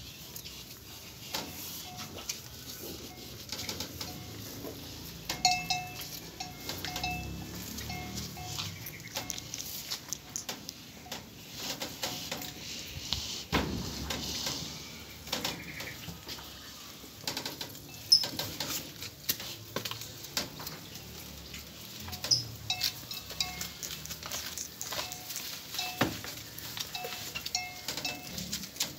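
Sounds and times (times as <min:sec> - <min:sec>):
cattle munching straw: 0:00.0 - 0:28.9
heavy thump: 0:13.5 - 0:14.4.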